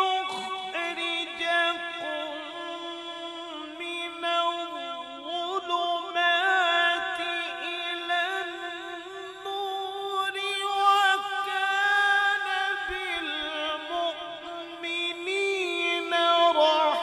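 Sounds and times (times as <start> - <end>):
man reciting melodically: 0.0 - 17.0.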